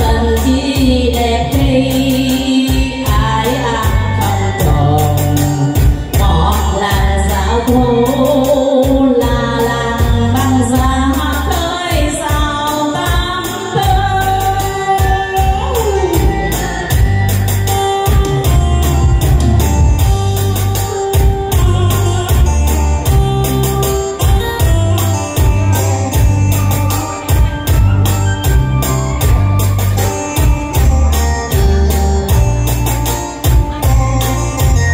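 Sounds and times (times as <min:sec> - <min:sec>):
woman singing into microphone: 0:00.0 - 0:18.5
backing track with bass beat: 0:00.0 - 0:34.9.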